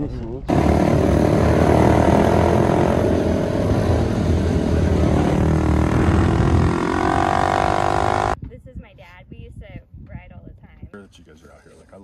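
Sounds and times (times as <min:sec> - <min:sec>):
dirt bike engines running: 0:00.5 - 0:08.4.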